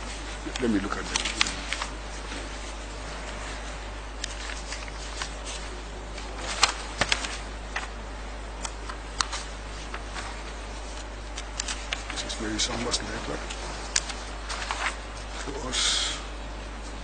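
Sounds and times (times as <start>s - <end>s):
paper rustling: 0.0s - 8.0s, 8.6s - 15.7s
steady low hum: 0.0s - 17.0s.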